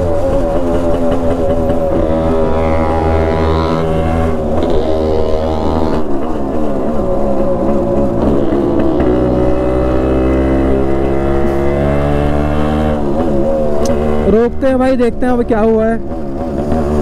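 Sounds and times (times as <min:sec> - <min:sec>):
two-stroke motorcycle engine: 0:00.0 - 0:17.0.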